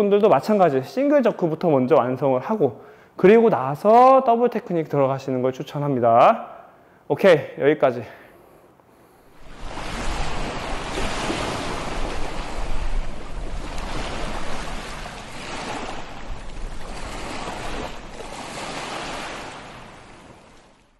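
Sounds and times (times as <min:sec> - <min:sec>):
ocean surf washing onto a beach: 0:09.3 - 0:20.9.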